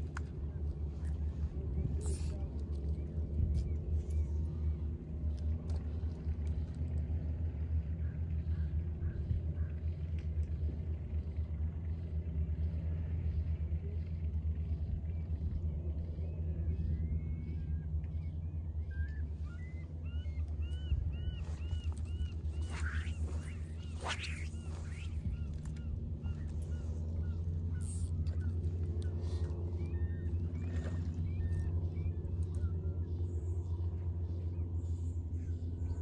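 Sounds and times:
low rumble: 0.0s - 36.0s.

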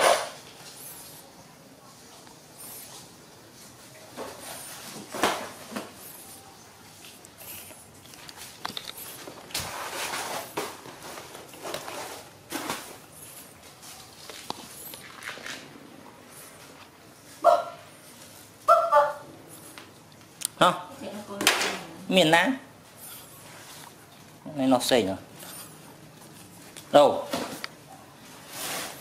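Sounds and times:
rustling: 2.0s - 18.6s, 25.4s - 29.0s.

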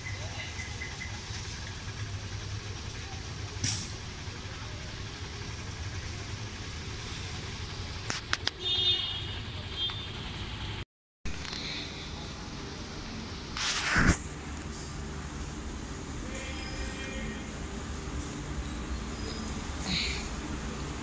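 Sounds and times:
short rush of noise: 13.5s - 14.5s.

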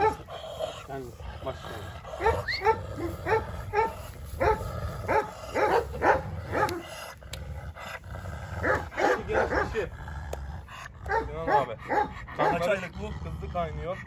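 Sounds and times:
dogs barking: 0.0s - 7.2s, 7.8s - 14.0s.

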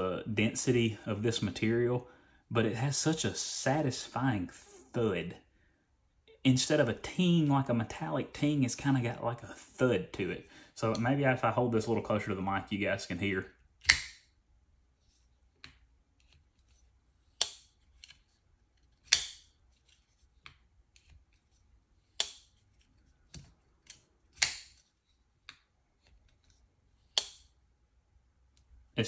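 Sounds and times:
folding knife snapping shut: 13.8s - 14.2s, 19.0s - 19.4s.

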